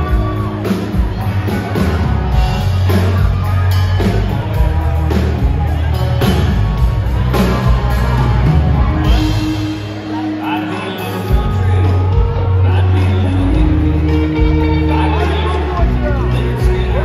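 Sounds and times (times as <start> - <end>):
bass guitar: 0.0 - 17.0
drum kit beat: 0.0 - 17.0
electric guitars: 0.0 - 17.0.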